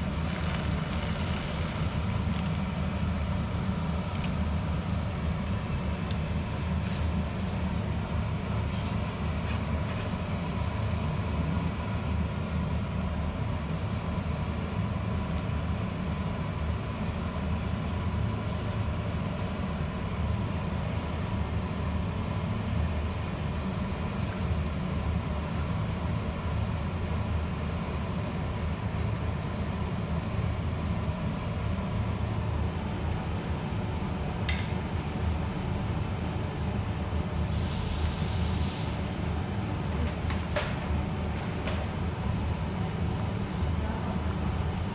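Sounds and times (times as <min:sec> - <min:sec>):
faint steady hum: 0:00.0 - 0:44.9
water boiling in pot: 0:00.0 - 0:44.9.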